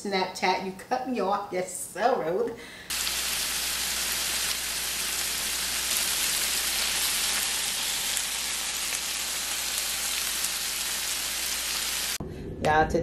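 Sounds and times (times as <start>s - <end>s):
food sizzling in oil: 2.9s - 12.2s.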